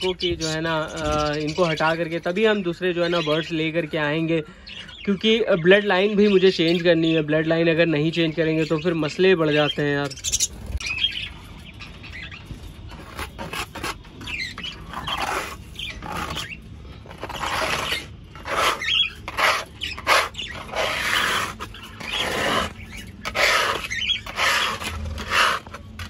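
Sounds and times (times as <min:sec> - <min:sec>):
budgerigars chattering and squawking: 0:00.0 - 0:25.8.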